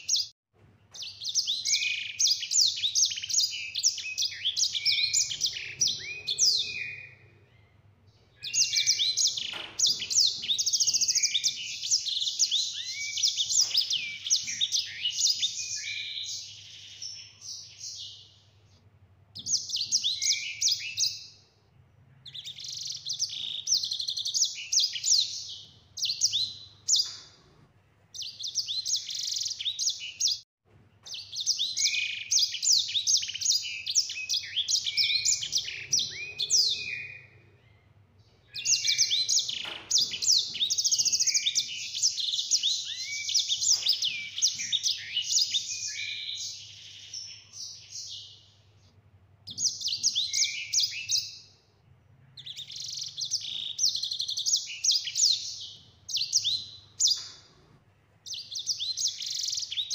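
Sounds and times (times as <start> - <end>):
finch twittering trills: 0.9 - 18.3, 31.0 - 37.8, 38.4 - 48.5.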